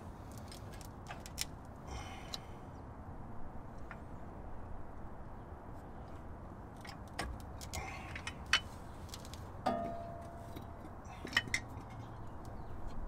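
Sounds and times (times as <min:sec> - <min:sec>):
metal tools clinking and tapping: 0:09.6 - 0:12.3.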